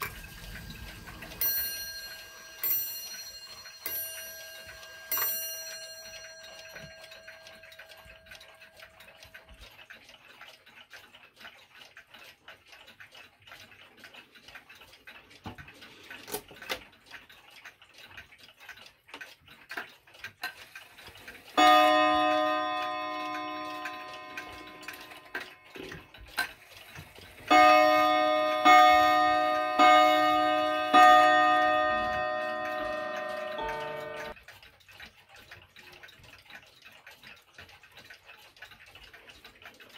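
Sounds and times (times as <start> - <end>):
clock ticking: 0.0 - 39.9
clock gong striking: 21.6 - 26.0, 27.5 - 34.4.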